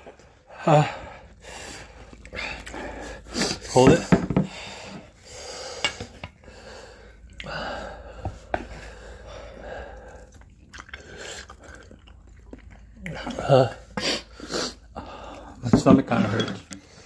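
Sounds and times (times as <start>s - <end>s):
chewing: 1.8s - 3.3s, 8.3s - 15.6s
slurping noodles: 9.8s - 15.6s.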